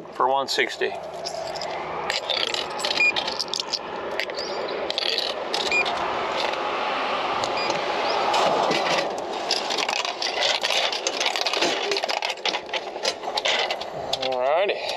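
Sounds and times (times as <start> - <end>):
steady rushing noise: 0.0 - 10.3.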